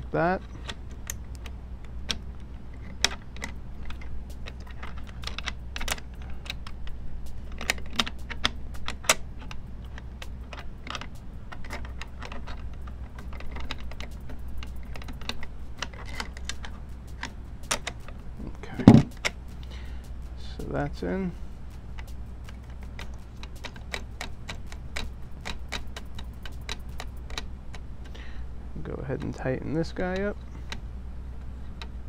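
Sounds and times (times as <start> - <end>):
low steady hum: 0.0 - 32.0
metal parts clicking and scraping: 0.4 - 28.2.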